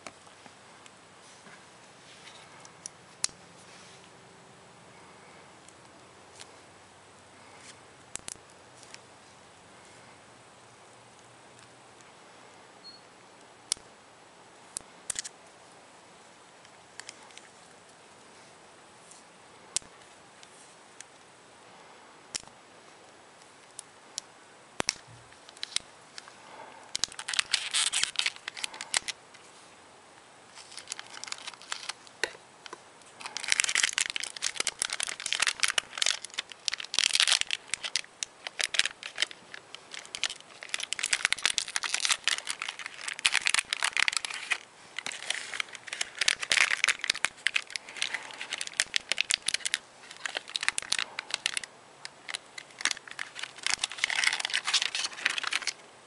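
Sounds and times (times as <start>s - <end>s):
cellophane wrapper crinkling and tearing: 24.8s - 25.9s, 26.9s - 29.2s, 30.5s - 32.3s, 33.1s - 55.8s.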